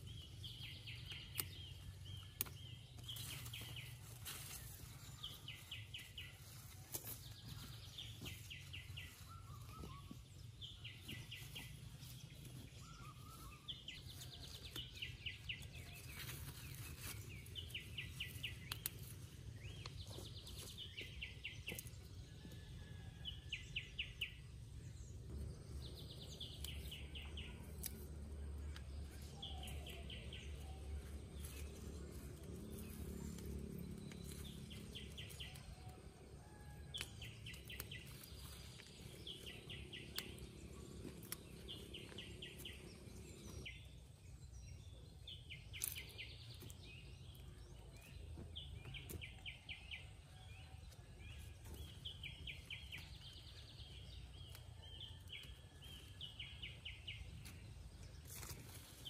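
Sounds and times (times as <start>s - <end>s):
pods snapping off vines: 1.1s - 3.3s, 18.5s - 19.2s
low rumble: 24.1s - 54.5s.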